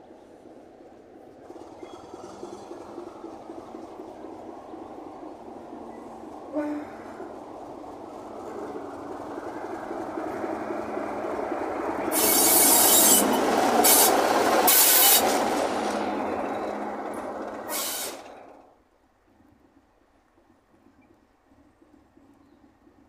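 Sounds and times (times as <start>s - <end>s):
diesel locomotive engine drone: 0.0s - 23.0s
short bursts of high hiss: 12.1s - 13.2s, 17.7s - 18.2s.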